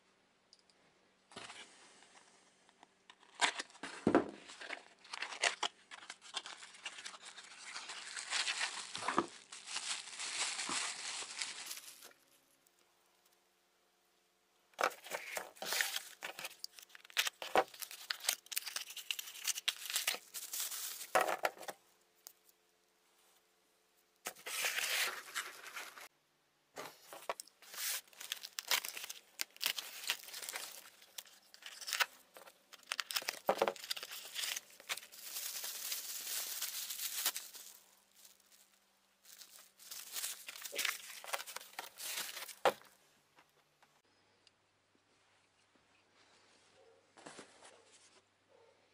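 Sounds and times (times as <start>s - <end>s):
bubble wrap crinkling: 4.4s - 12.6s, 14.8s - 21.7s, 24.3s - 26.1s, 27.0s - 42.9s.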